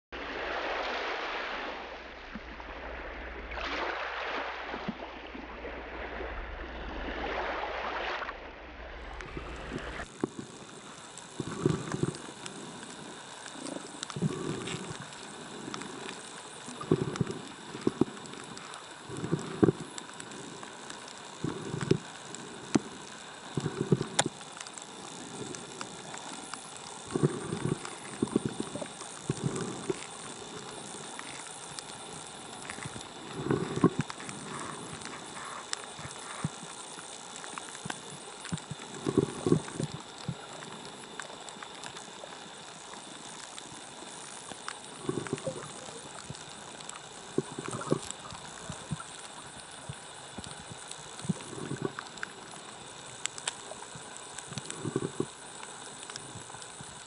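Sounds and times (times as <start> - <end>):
muffled underwater rushes: 0.2 - 16.0
small waves washing in: 0.2 - 36.6.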